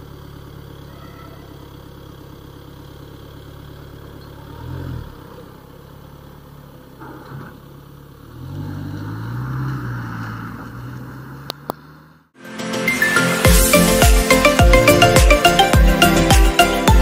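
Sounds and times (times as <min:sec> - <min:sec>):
car engine idling and pulling away: 0:00.0 - 0:12.4, 0:13.0 - 0:17.0
tyres hissing on wet asphalt: 0:13.0 - 0:15.2.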